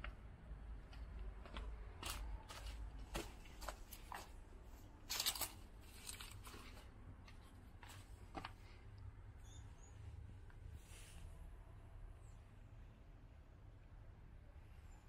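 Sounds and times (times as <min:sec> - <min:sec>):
footsteps crunching on debris: 0:00.8 - 0:04.4.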